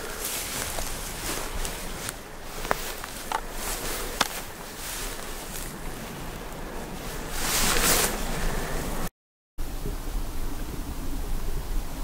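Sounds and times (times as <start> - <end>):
walking through grass: 0.0 - 9.1
wind on microphone: 0.0 - 12.0.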